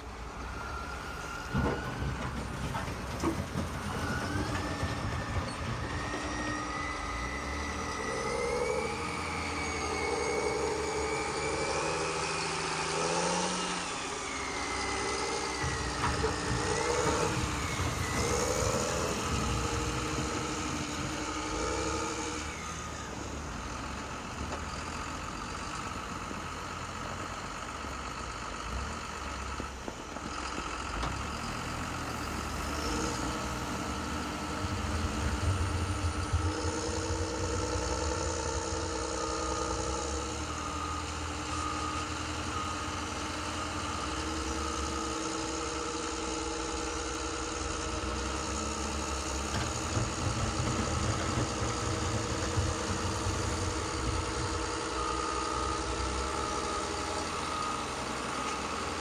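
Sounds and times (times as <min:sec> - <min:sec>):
model loader motor droning: 0:00.0 - 0:59.0
reversing beeper: 0:03.8 - 0:23.0, 0:32.1 - 0:47.7, 0:48.8 - 0:59.0.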